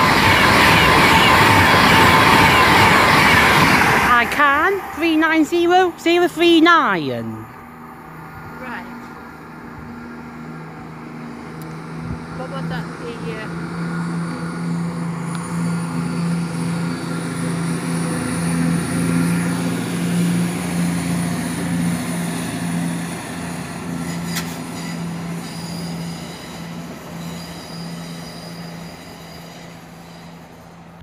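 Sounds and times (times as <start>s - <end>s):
train engine drone: 0.0s - 31.0s
wheel squeal: 23.9s - 31.0s.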